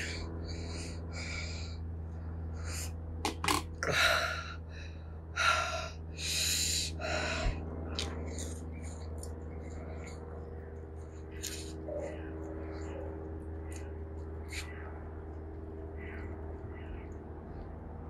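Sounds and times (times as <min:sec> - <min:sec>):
person breathing sharply through mouth: 0:05.4 - 0:07.6.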